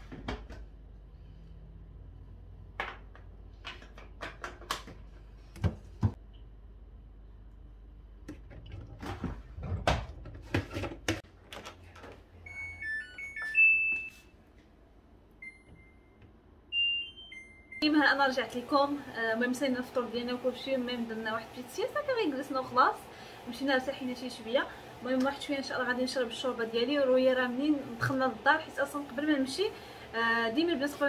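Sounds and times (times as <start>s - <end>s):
short electronic beeps: 15.4s - 17.8s.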